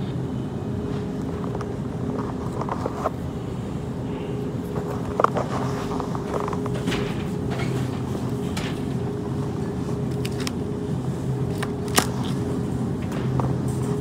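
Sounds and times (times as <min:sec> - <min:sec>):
refrigeration hum: 0:00.0 - 0:14.0.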